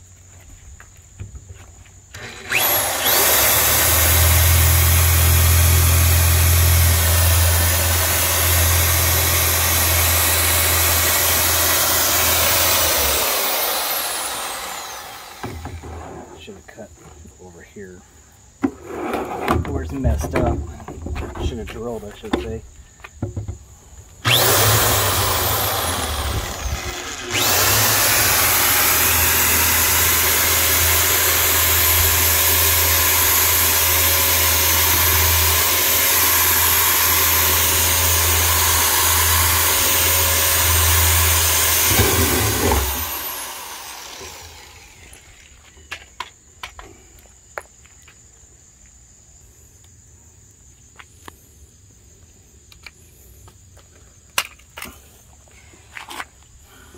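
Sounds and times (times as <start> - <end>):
drill boring through plastic: 2.1 - 16.0, 24.2 - 45.5.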